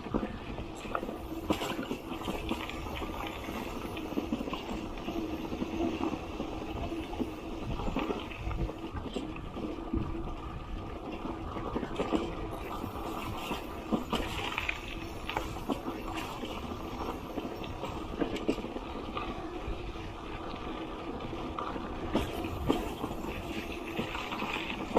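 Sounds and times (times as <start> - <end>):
bicycle rattling: 0.0 - 24.9.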